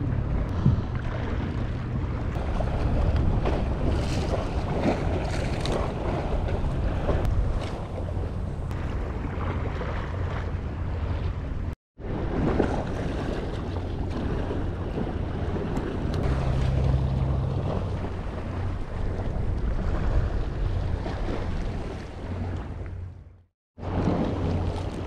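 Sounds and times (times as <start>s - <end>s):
wind buffeting microphone: 0.0s - 23.1s
sea waves: 0.0s - 25.0s.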